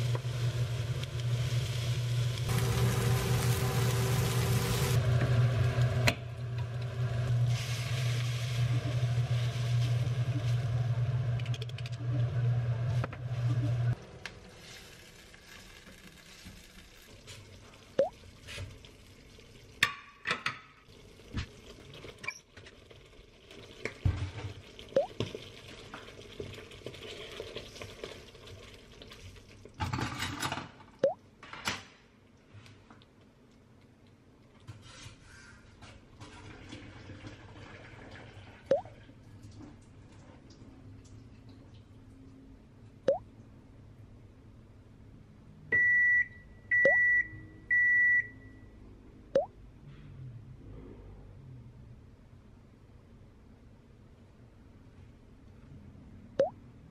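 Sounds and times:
range hood fan humming: 0.0 - 7.6.

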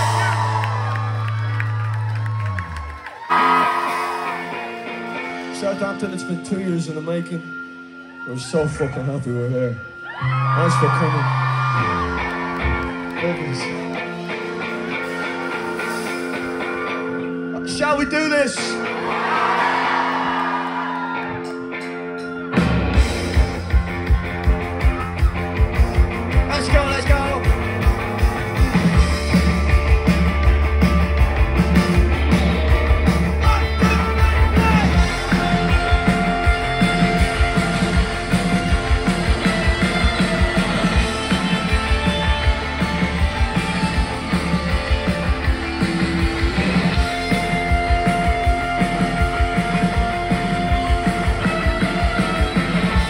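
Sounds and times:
electric guitar: 0.0 - 8.3, 9.8 - 53.0
live rock band playing: 0.0 - 53.0
steady drum beat: 22.6 - 53.0.

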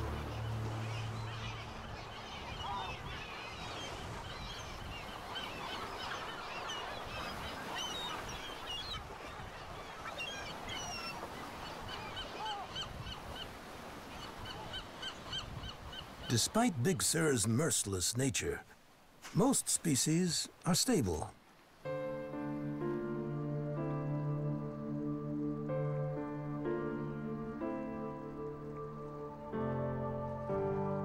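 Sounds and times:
birds calling: 0.0 - 18.6
low music: 21.9 - 31.0.

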